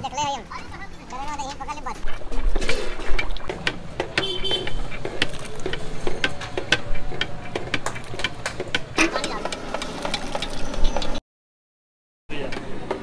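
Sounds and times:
street noise: 0.0s - 11.2s, 12.3s - 13.0s
low vehicle rumble: 0.2s - 11.2s
metal ladles clanking on pots: 2.0s - 10.6s.

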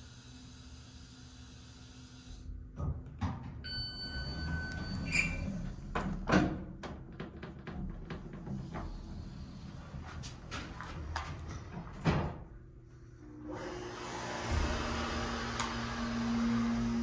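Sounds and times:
elevator ding: 3.6s - 5.6s
elevator doors opening: 3.6s - 12.4s.

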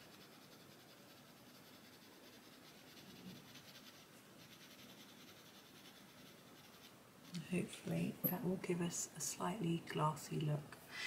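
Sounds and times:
pencil scratching on paper: 0.0s - 7.8s.

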